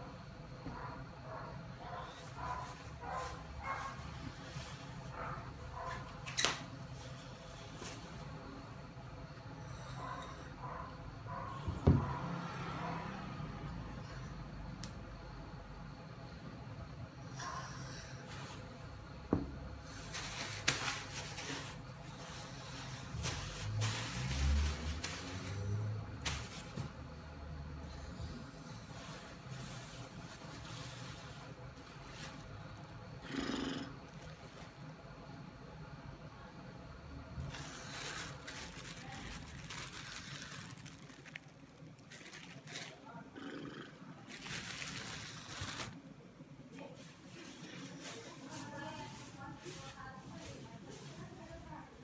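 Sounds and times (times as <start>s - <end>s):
plastic bag crinkling: 19.9s - 26.8s, 37.4s - 43.2s, 44.3s - 46.0s.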